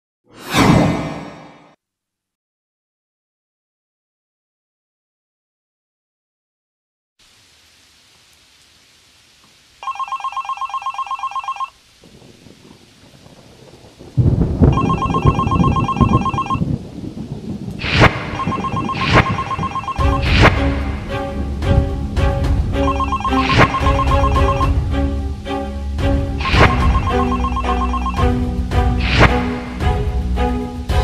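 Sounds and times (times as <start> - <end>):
telephone ringing: 9.8 - 11.8, 14.7 - 16.6, 18.4 - 20.2, 22.8 - 24.8, 26.7 - 28.2
music with percussive hits: 20.0 - 25.1, 26.0 - 31.0
loud low rumbling: 20.2 - 22.8.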